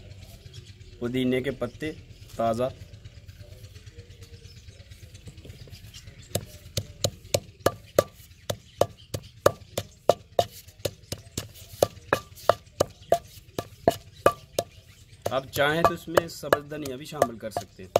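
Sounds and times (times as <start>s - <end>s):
pestle pounding in stone mortar: 6.3s - 17.9s.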